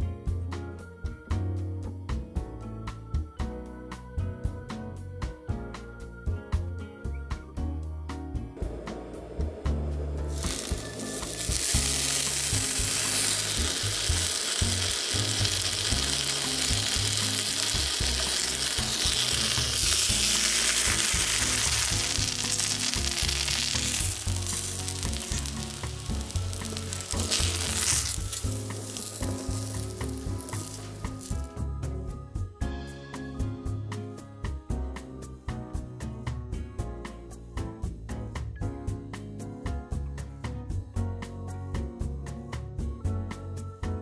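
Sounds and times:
eggplant frying in hot oil: 10.3 - 31.5.

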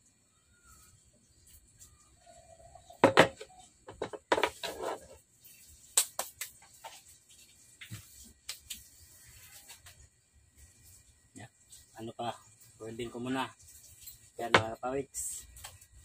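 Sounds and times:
metal rail and saddle knocking on table: 3.0 - 4.6.

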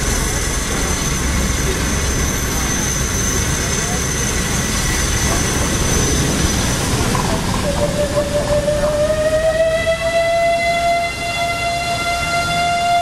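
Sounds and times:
steam train rumbling: 0.0 - 13.0
steam whistle blowing: 7.6 - 13.0.

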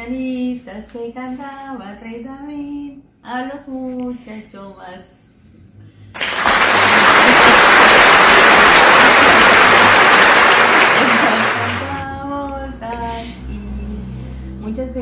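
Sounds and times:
dense rush of noise: 6.2 - 12.0.

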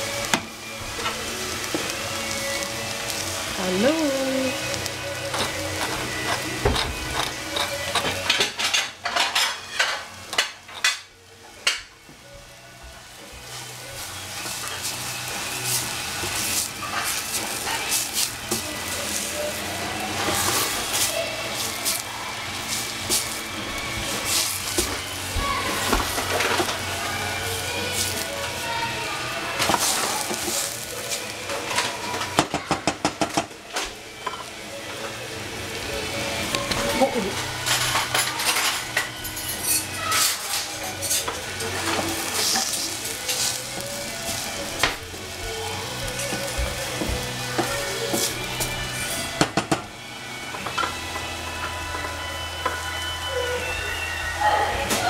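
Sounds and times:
vegetables stirred in saucepan: 0.0 - 12.2, 13.0 - 53.2
light sizzle: 0.0 - 55.0
utensil clicking against pan: 5.3 - 11.0.

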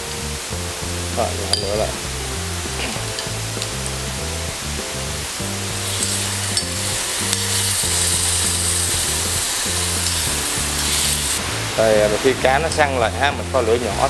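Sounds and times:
fish sizzling in hot oil: 0.0 - 14.0
metal spoon clicks: 6.0 - 7.7.

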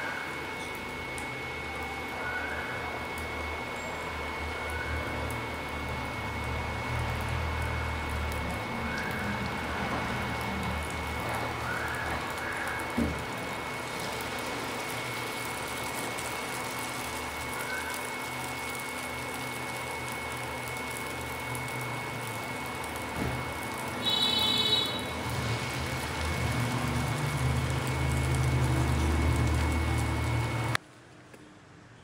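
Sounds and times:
food sizzling in hot oil: 0.0 - 30.8
thin steady high tone: 24.0 - 25.2.

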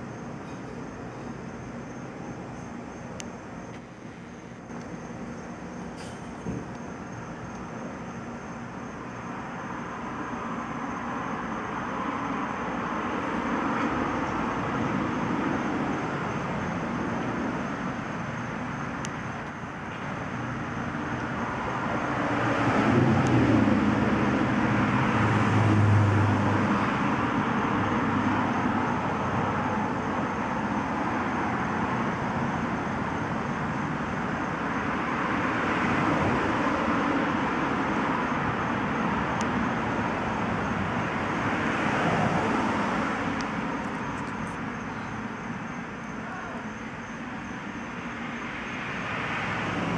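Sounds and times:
road traffic noise: 0.0 - 49.9
passing vehicle engine: 21.2 - 30.1.

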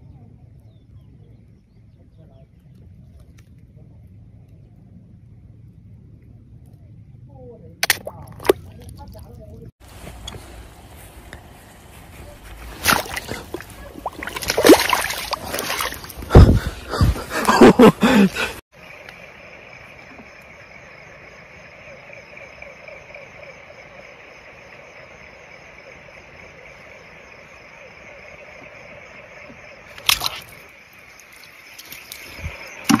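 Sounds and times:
water splashing: 7.8 - 10.3, 12.2 - 16.7, 29.9 - 33.0
high insect trill: 12.9 - 16.3, 17.4 - 33.0.

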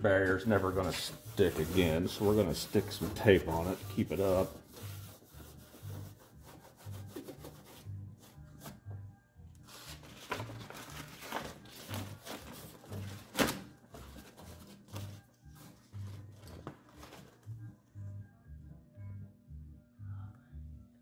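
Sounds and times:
background music with low beat: 0.0 - 21.0
rag rubbing on sheet metal: 0.1 - 7.9.

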